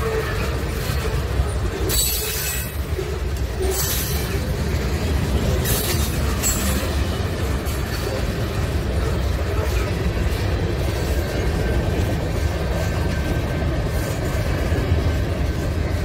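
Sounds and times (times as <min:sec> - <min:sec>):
wheel squeals: 0:00.0 - 0:04.4
train rumbling over rails: 0:00.0 - 0:16.0.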